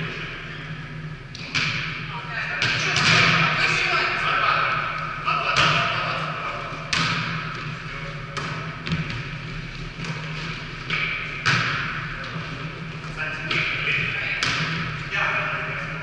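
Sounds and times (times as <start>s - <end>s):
volleyball slaps echoing in hall: 0.0s - 16.0s.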